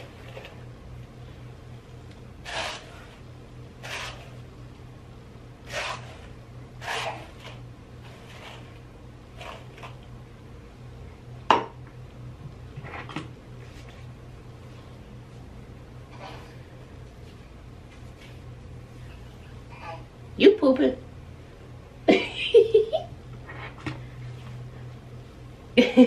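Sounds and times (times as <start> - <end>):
steady low hum: 0.0 - 26.0
hairbrush swishing through hair: 2.4 - 3.2, 3.8 - 4.4, 5.7 - 8.8.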